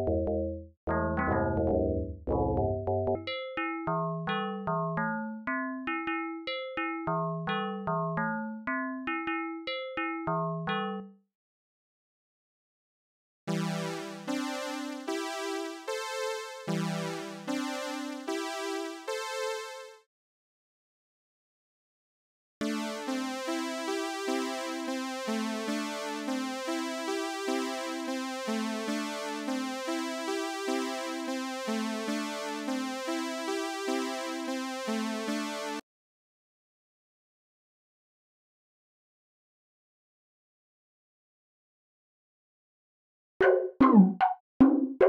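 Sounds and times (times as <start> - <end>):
sawtooth synth lead melody: 0.9 - 1.8, 22.6 - 35.8
synthesizer sawtooth lead notes: 0.9 - 2.6.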